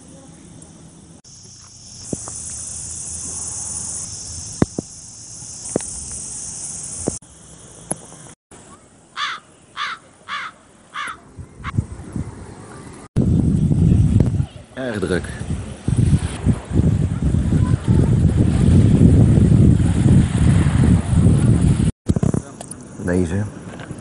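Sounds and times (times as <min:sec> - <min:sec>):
cicadas buzzing: 0:00.0 - 0:11.8
bird calling: 0:08.7 - 0:11.8.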